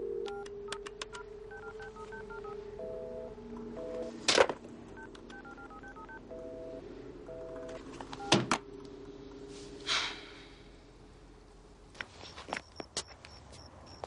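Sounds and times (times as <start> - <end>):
telephone dial tone: 0.0 - 4.2, 4.9 - 8.4.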